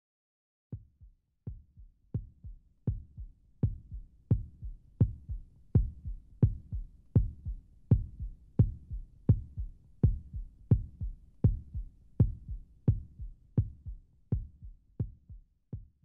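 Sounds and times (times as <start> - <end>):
deep heartbeat-like thumping pulse: 0.8 - 16.0.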